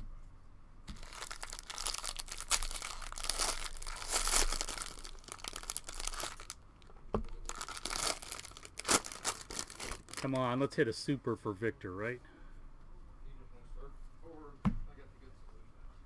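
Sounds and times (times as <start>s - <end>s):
foil wrapper crinkling and tearing: 1.0s - 6.6s, 7.3s - 10.4s.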